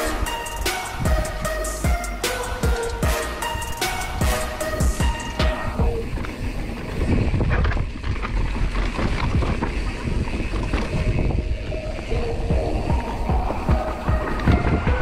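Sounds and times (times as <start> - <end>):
bike knocking and rattling: 4.8 - 15.0
mountain bike rolling on dirt: 5.0 - 15.0
wind on microphone: 5.0 - 15.0.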